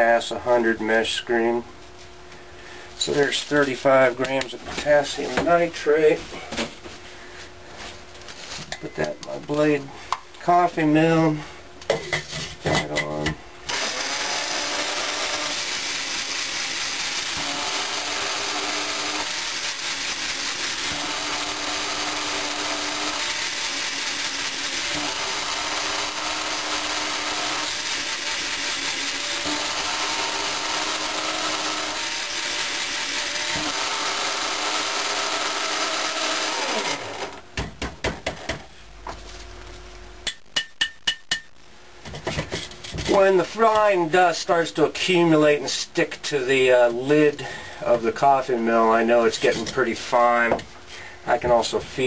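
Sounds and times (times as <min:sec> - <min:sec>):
sharp clicks and knocks: 0:11.8 - 0:13.4, 0:40.2 - 0:43.2
coffee grinder grinding crystals: 0:13.7 - 0:37.4.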